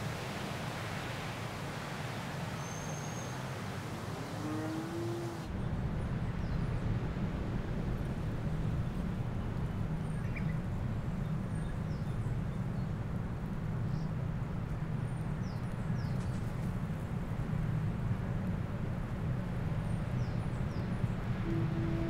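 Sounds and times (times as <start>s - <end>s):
steady low rumble: 16.7s - 22.0s.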